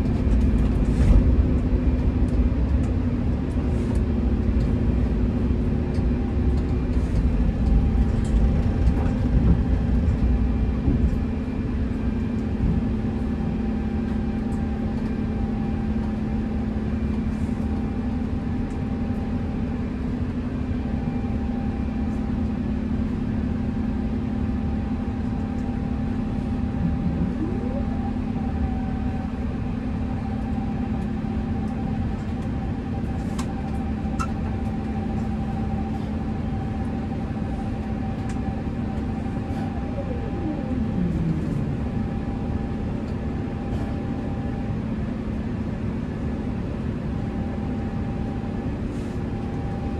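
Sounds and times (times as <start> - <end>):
airflow rush in plane cabin: 0.0 - 49.9
jet engines low hum: 0.0 - 49.9
steady higher tone: 26.6 - 29.1.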